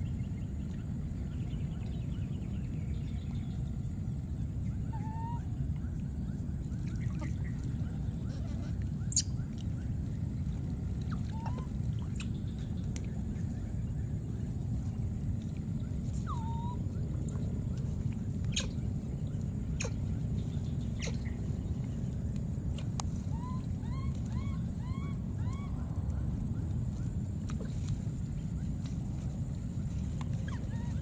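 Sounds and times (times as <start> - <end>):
steady low rumble: 0.0 - 31.0
high chirping animal calls: 18.5 - 18.8, 20.8 - 21.4, 22.7 - 25.9.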